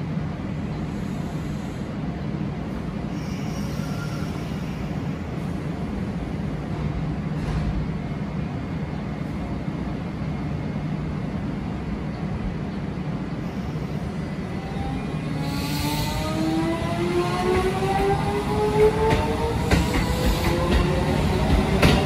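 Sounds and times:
electric train humming: 8.0 - 22.0.

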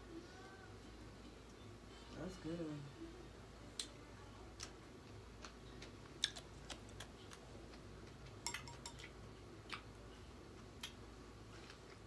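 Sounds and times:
eating clicks and smacks: 4.6 - 10.0, 10.6 - 11.0.

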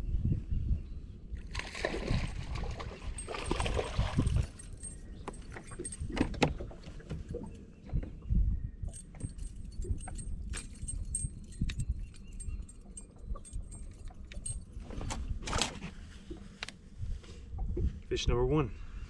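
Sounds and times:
clicks rattles and knocks: 3.2 - 7.5.

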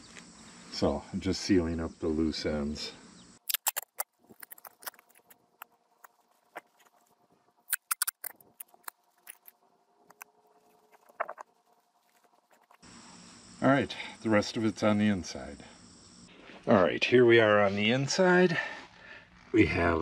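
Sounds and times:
tape crackling and crinkling: 3.4 - 12.8.

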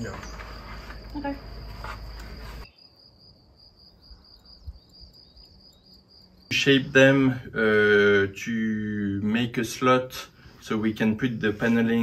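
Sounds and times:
high insect trill: 0.0 - 8.9.

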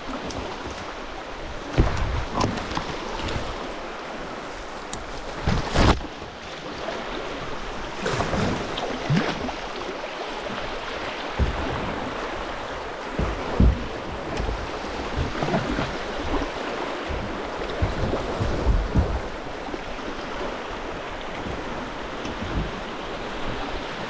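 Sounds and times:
dull thumps: 1.7 - 2.9, 13.1 - 19.7.

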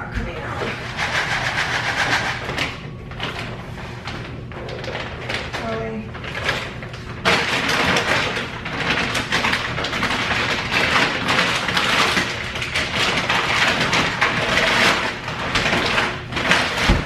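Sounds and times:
plastic bags crinkling: 2.2 - 17.0.

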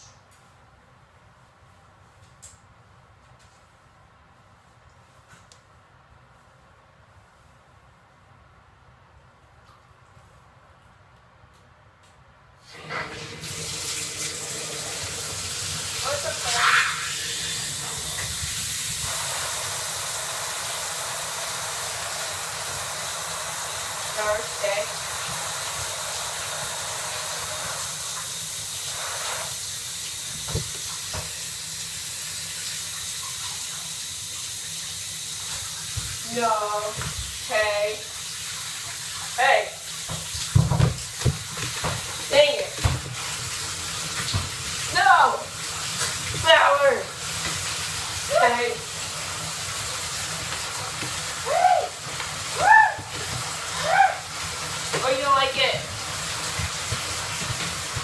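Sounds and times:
water running into a bathtub: 12.6 - 58.0
short high cries: 52.6 - 53.1.

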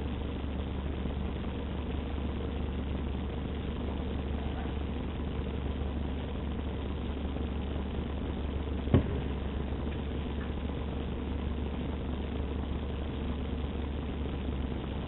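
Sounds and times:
truck engine idling: 0.0 - 15.0
short knock: 8.9 - 9.2.

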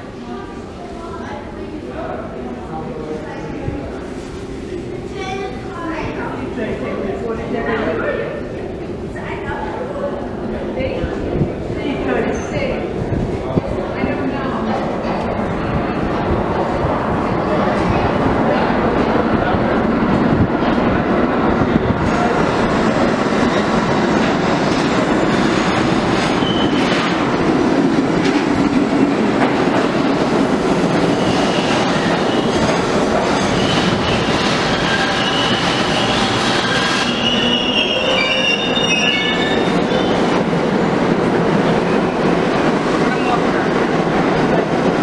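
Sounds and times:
subway train wheels rumbling on rails: 0.0 - 45.0
high brake squealing: 33.5 - 40.2.

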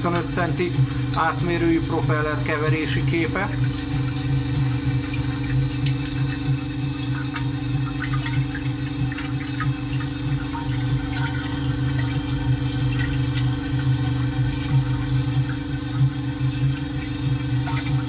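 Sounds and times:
stirrer motor humming: 0.0 - 18.0
water swirling and sloshing: 3.5 - 18.0.

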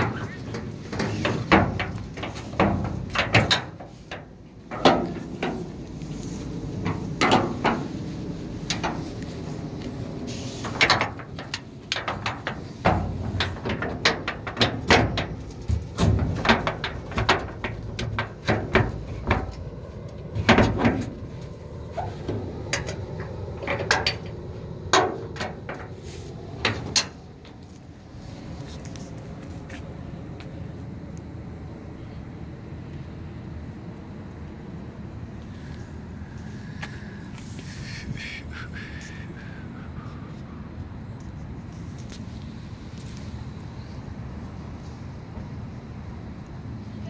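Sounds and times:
footsteps on steel truck bed: 0.0 - 30.6, 36.3 - 37.7.

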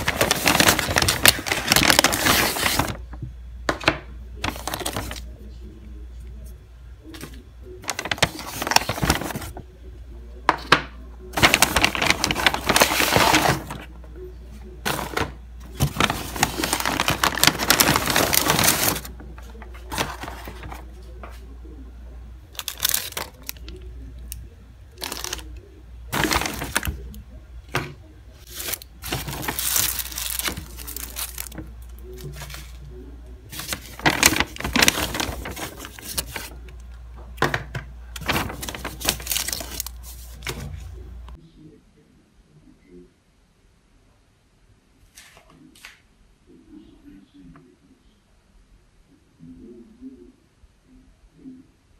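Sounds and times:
paper bag rustling and crinkling: 0.0 - 5.5, 7.0 - 9.6, 10.7 - 14.2, 14.8 - 21.5, 22.5 - 23.9, 24.9 - 36.8, 37.4 - 41.3
faint low hum: 0.0 - 51.9.

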